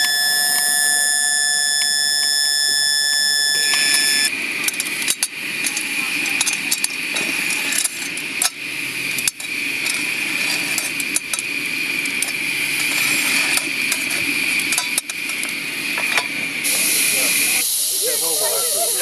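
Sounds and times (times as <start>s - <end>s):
steady hiss of steam: 0.0s - 19.0s
coal clinking on a steel shovel: 4.6s - 16.5s.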